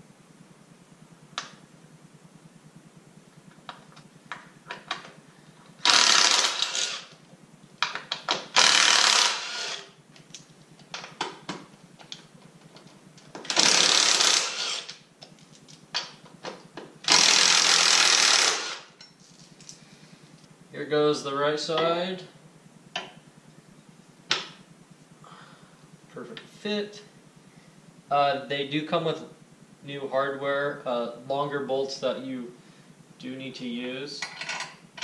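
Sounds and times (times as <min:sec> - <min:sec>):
tool handling clicks and knocks: 0:03.6 - 0:05.8, 0:34.2 - 0:35.0
cordless power driver whirring: 0:05.8 - 0:07.2, 0:08.4 - 0:10.0, 0:13.5 - 0:15.0, 0:17.1 - 0:19.0.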